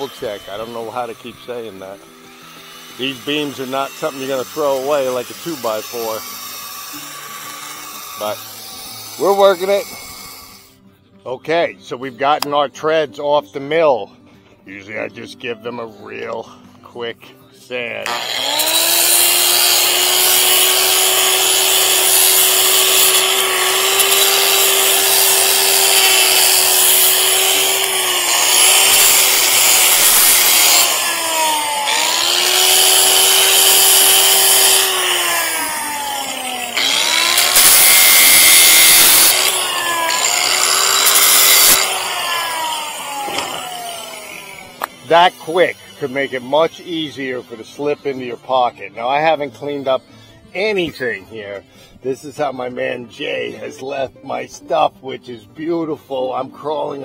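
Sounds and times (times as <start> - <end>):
gritty rasping on wood: 0.0 - 10.6, 18.1 - 46.8
electric sander whining: 0.0 - 10.7, 18.0 - 47.9.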